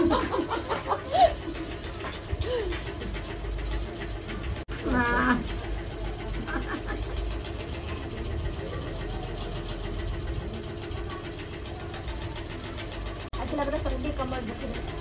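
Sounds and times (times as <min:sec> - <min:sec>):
low mechanical hum: 0:00.0 - 0:15.0
faint speech: 0:04.7 - 0:15.0.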